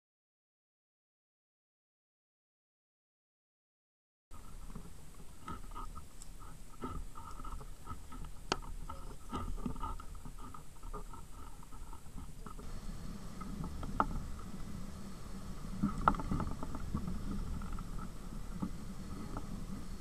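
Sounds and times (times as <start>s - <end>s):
wind rumbling on microphone: 4.4s - 20.0s.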